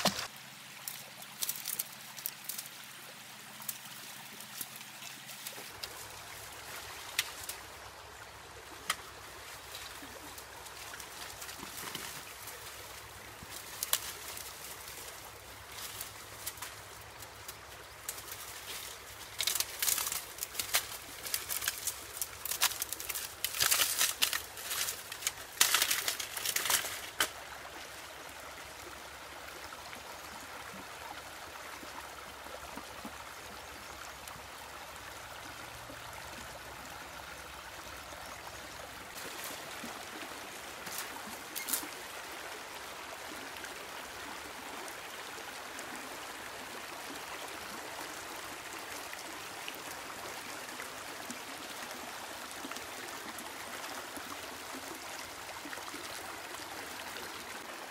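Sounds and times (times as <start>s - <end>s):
creek water rushing over stones: 0.0s - 57.9s
dry sticks cracking and snapping: 0.9s - 2.7s, 8.8s - 9.1s, 13.4s - 14.8s, 15.8s - 27.4s.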